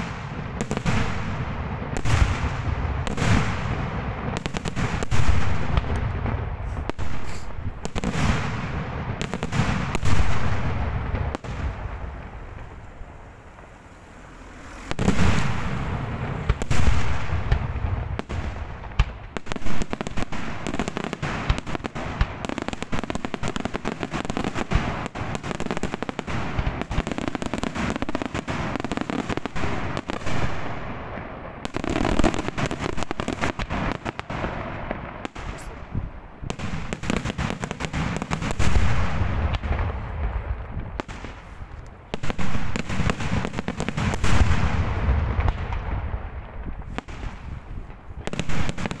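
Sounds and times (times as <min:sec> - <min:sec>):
fireworks cracking: 0:00.0 - 0:49.0
heavy fireworks booms: 0:00.0 - 0:49.0.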